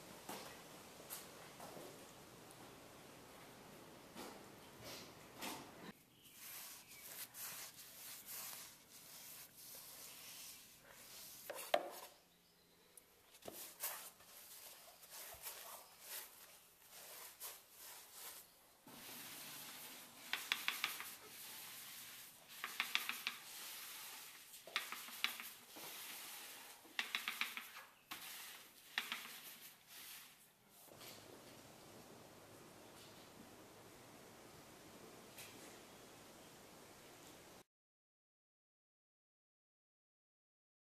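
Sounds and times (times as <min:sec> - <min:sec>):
paint roller rolling on concrete: 0:06.3 - 0:12.2, 0:13.4 - 0:31.6
paintbrush scrubbing concrete: 0:06.3 - 0:12.2, 0:13.4 - 0:30.9.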